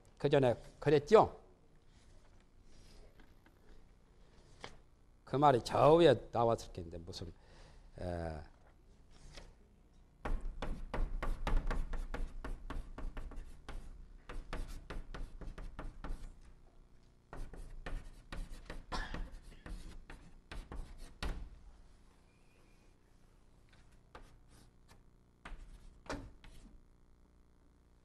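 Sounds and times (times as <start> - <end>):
chalk tapping and scraping on blackboard: 10.2 - 16.5, 17.3 - 21.5, 23.8 - 26.8.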